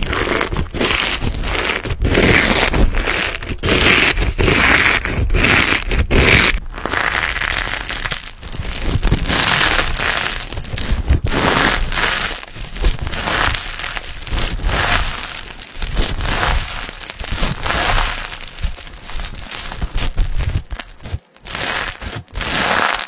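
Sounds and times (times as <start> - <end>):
crunchy slime being squeezed: 0.0 - 23.0.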